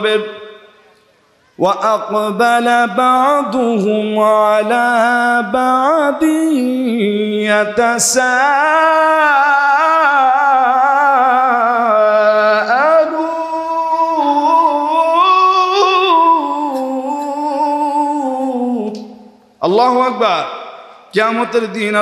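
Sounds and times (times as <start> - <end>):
man chanting through microphone: 0.0 - 0.6, 1.6 - 22.0.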